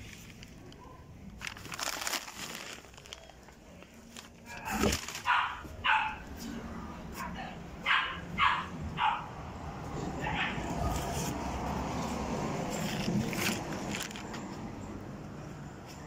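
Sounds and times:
plastic bags rustling: 0.0s - 6.3s, 12.6s - 14.4s
dog barking: 5.2s - 6.3s, 7.2s - 9.3s, 10.2s - 10.8s.

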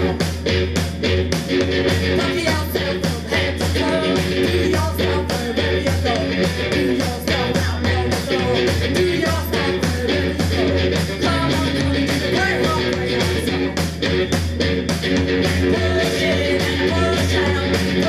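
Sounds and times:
driving drum beat: 0.0s - 18.0s
electric guitar: 0.0s - 18.0s
person singing: 2.1s - 13.8s, 15.6s - 18.0s.

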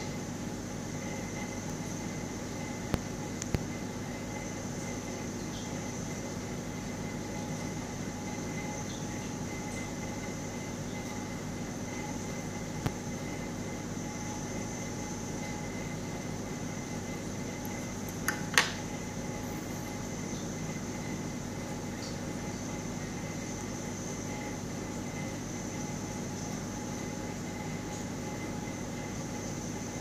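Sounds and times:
mechanical hum with high whine: 0.0s - 30.0s.

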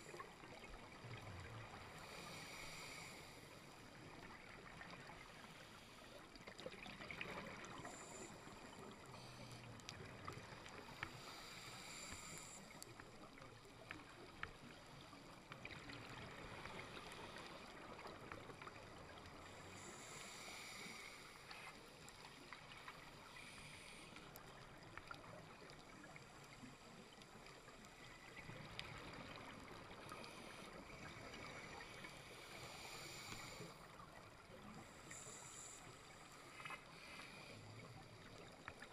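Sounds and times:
muffled underwater hiss: 0.0s - 38.9s
faint clicks: 8.7s - 15.8s, 21.4s - 32.4s.

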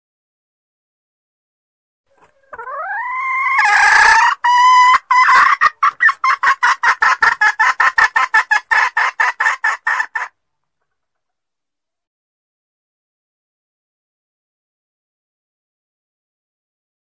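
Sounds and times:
hen squawking and clucking: 2.1s - 10.4s.

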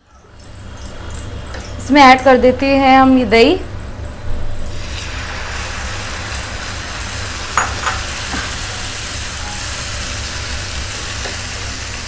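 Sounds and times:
curd sizzling in hot oil: 4.6s - 12.0s.

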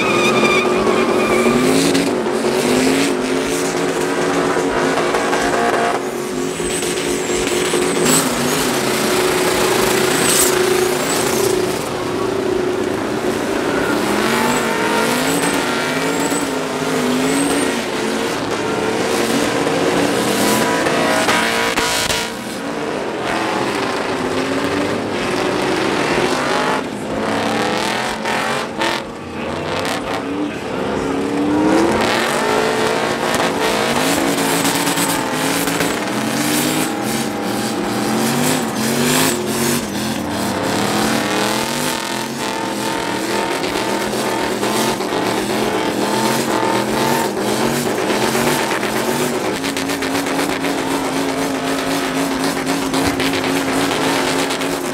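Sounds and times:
spinning tyres squealing: 0.0s - 54.9s
truck engines revving hard: 0.0s - 54.9s.

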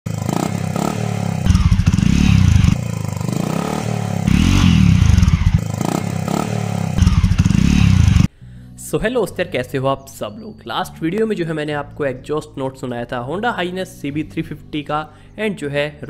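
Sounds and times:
motorcycle exhaust idling and revving: 0.1s - 8.3s.

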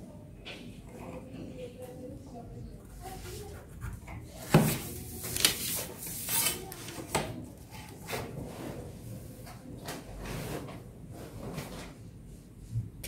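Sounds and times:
paper rustling: 4.4s - 7.2s.

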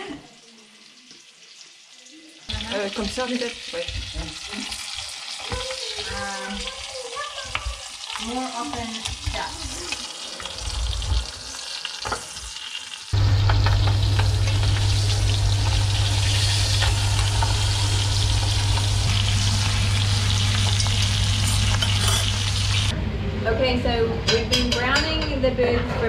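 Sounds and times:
butter sizzling and frying: 0.0s - 22.9s
crackles: 9.0s - 22.9s
steady low hum: 13.2s - 24.0s.

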